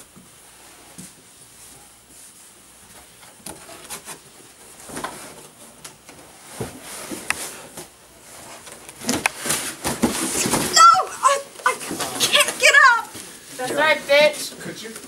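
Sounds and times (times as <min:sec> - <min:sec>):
cardboard boxes rustling and bumping: 0:06.2 - 0:10.9.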